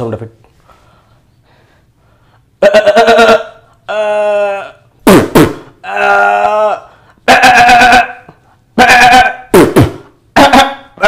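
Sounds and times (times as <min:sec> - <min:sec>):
man imitating goat bleating: 0:02.6 - 0:04.9, 0:05.8 - 0:11.0.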